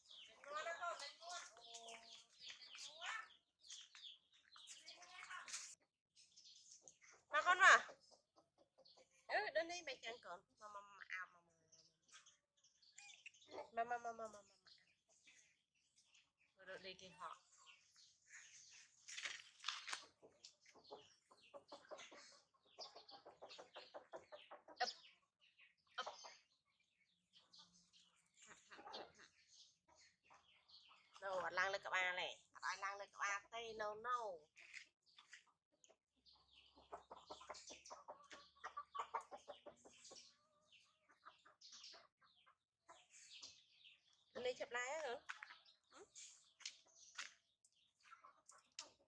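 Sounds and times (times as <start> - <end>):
animal clucking: 20.0 - 25.2, 36.6 - 43.0.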